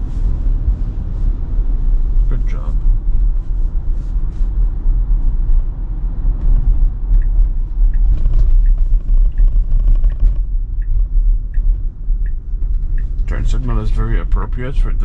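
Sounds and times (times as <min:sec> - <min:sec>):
road and tyre rumble: 0:00.0 - 0:15.0
turn signal ticking: 0:04.2 - 0:15.0.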